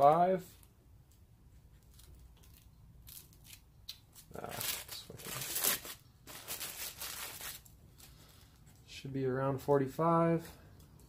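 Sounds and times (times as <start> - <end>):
plastic wrapping crinkling: 1.6 - 8.8.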